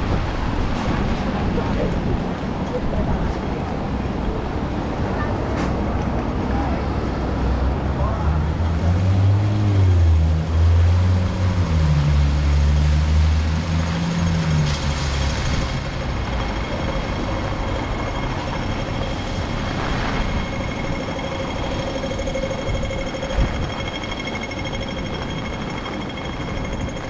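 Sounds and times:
heavy vehicle engine droning: 0:00.0 - 0:27.0
faint high whine: 0:14.7 - 0:27.0.

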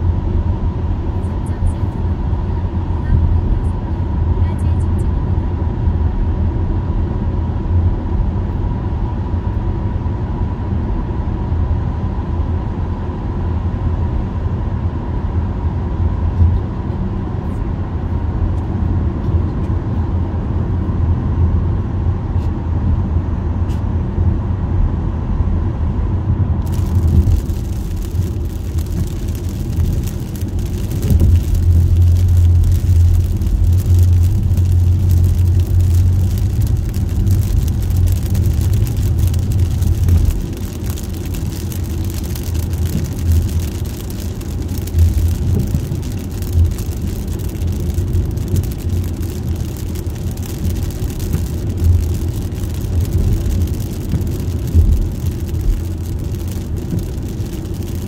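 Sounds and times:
car road and engine rumble: 0:00.0 - 0:58.0
rain and tyres on wet road: 0:00.0 - 0:58.0.

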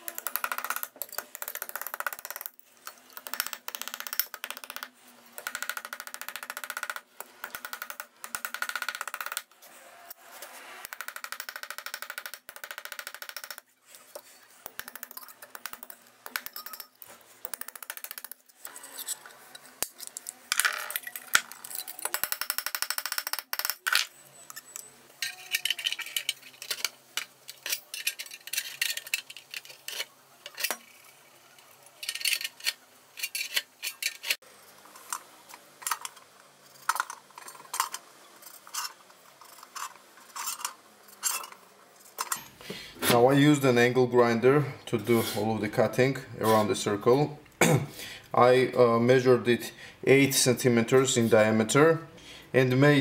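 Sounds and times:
metal containers clinking and scraping: 0:24.0 - 0:42.6.

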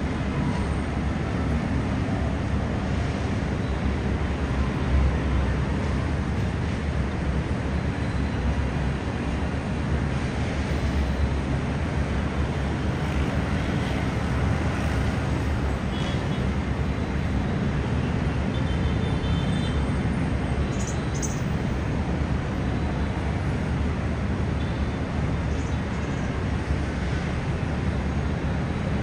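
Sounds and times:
city traffic rumble: 0:00.0 - 0:29.0.

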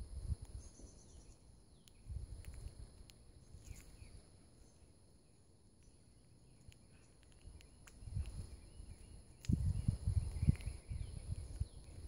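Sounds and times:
wind rumbling on microphone: 0:00.0 - 0:04.2, 0:07.3 - 0:12.0
faint chirps: 0:00.3 - 0:12.0.

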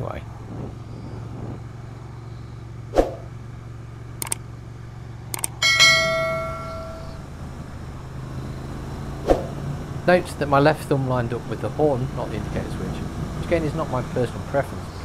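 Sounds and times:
motorcycle engine and road drone: 0:00.0 - 0:15.0
mouse clicks: 0:04.2 - 0:04.4, 0:05.3 - 0:05.6
bell chime: 0:05.6 - 0:07.2.

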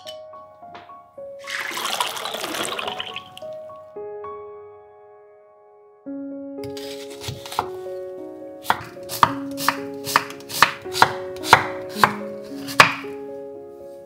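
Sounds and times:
soft background music: 0:00.0 - 0:14.0
knife chopping on wooden board: 0:06.8 - 0:07.8, 0:08.6 - 0:13.2.

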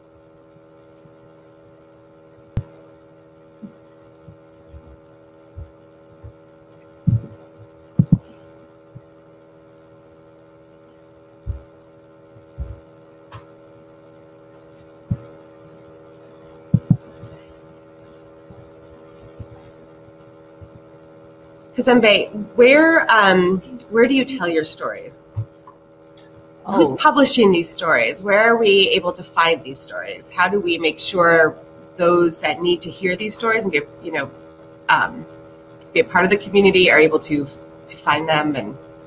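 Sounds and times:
steady tonal hum: 0:00.0 - 0:39.0
dull low thumps: 0:07.0 - 0:08.4, 0:11.5 - 0:11.7, 0:12.3 - 0:12.9, 0:16.7 - 0:17.4.

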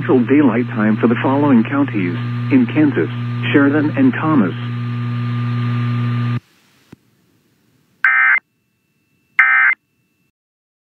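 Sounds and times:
electrical hum: 0:00.0 - 0:09.8
buzzy data bursts: 0:00.1 - 0:06.4.

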